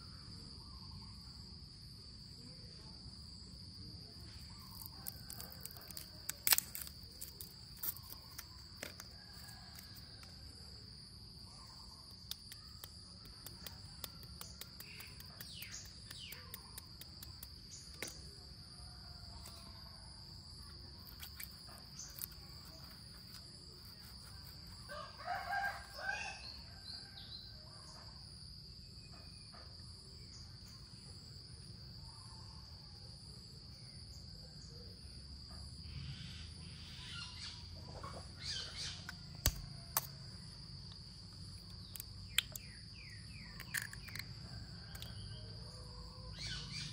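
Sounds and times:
rooster crowing: 24.8s - 27.2s.

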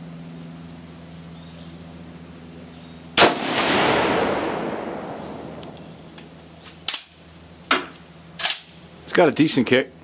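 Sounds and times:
rifle shot with echo: 3.2s - 5.7s
rifle bolt metallic clicks: 8.4s - 8.8s.

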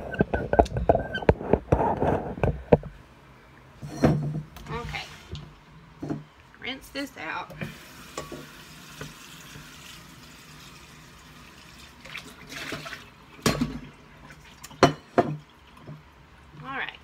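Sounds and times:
kitchen tap running: 7.6s - 16.1s.

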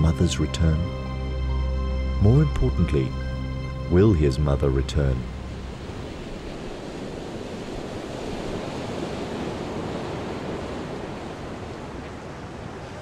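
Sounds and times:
ocean waves washing: 0.0s - 13.0s.

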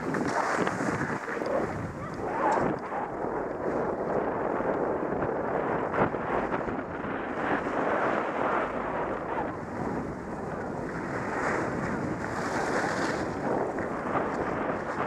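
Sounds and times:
skis scraping over snow: 0.0s - 15.0s
wind rushing over microphone: 0.0s - 15.0s.

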